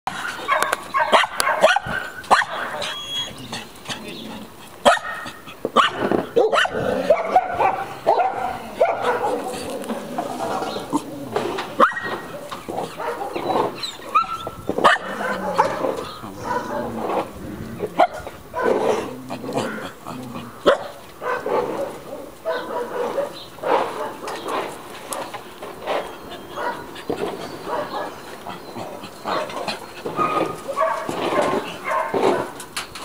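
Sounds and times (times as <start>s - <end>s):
dog barking: 0.1s - 3.0s, 4.8s - 9.7s, 11.8s - 17.0s, 17.9s - 19.0s, 20.6s - 24.5s, 26.6s - 26.9s, 27.6s - 28.2s, 29.3s - 32.6s
dog whining: 2.5s - 4.5s, 10.7s - 16.9s.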